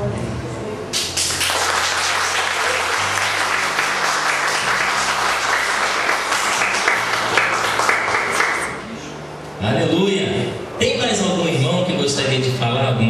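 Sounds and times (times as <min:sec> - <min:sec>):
crowd applauding: 0:01.0 - 0:08.9.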